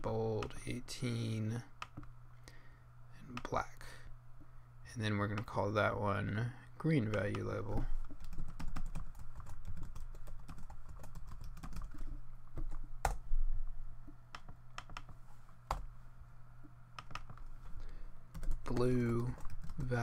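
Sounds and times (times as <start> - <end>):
typing on a keyboard: 8.2 - 12.0.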